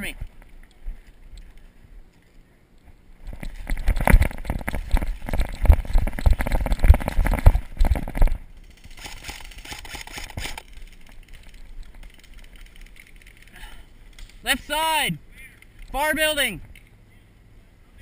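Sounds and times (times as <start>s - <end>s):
gear rattling: 3.2s - 14.5s
running footsteps: 3.2s - 14.5s.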